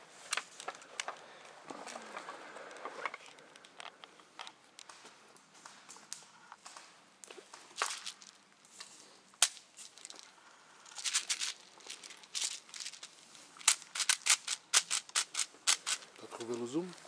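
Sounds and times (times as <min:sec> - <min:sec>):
footsteps crunching through dry leaves: 0:07.4 - 0:10.2.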